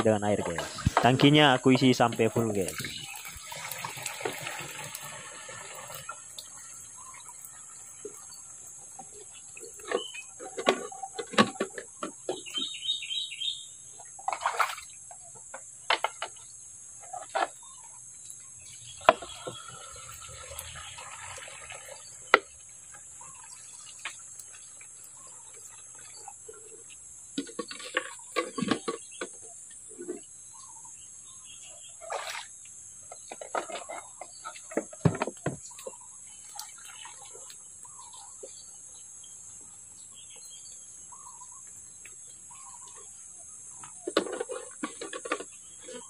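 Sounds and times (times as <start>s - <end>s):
water trickling into tank: 0.2s - 11.3s, 17.6s - 28.8s, 32.0s - 39.7s
splashes and knocks: 0.2s - 12.7s, 14.2s - 16.4s, 18.9s - 29.4s, 32.0s - 32.5s, 33.1s - 38.5s, 43.8s - 46.0s.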